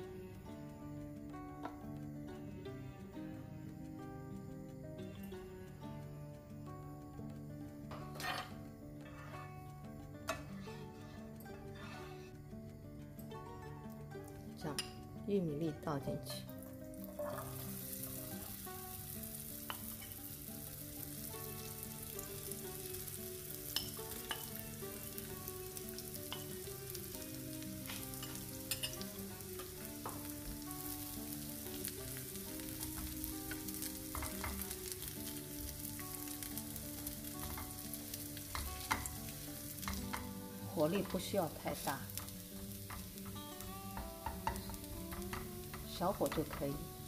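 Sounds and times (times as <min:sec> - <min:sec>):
corn sizzling in hot oil: 0:00.0 - 0:47.0
utensils scraping a pan: 0:07.9 - 0:09.6, 0:10.3 - 0:12.4.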